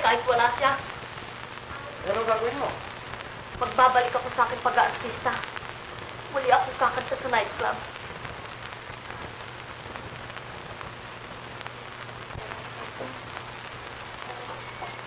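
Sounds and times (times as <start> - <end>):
film soundtrack crackling hiss: 0.0 - 15.0.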